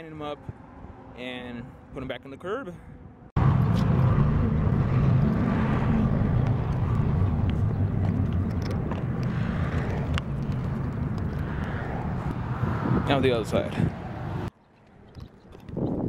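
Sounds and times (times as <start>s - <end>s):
wind buffeting microphone: 3.4s - 14.5s, 15.1s - 16.0s.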